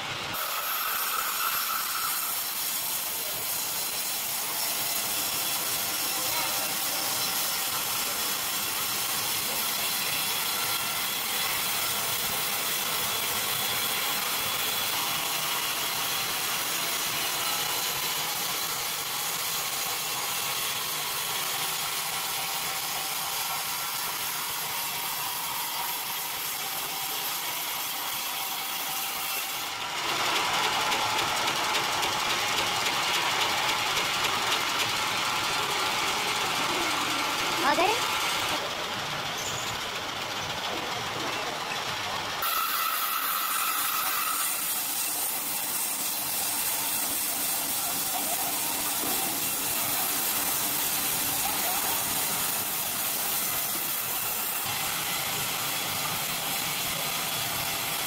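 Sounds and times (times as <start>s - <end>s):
circular saw ripping plank: 42.4s - 54.6s.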